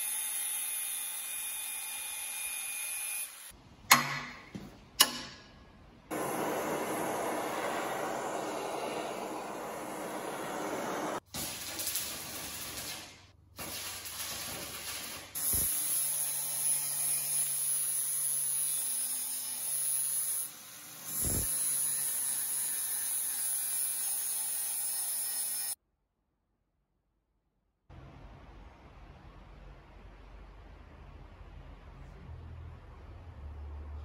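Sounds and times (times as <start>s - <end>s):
gas torch hissing: 6.1s - 13.1s, 15.4s - 15.7s, 21.1s - 21.5s
angle grinder grinding metal: 16.6s - 25.8s.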